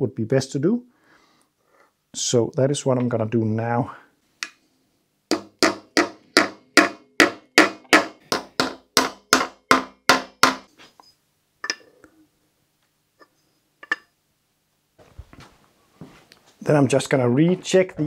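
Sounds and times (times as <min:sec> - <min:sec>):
hammer striking metal wheel weight: 0:05.3 - 0:10.7.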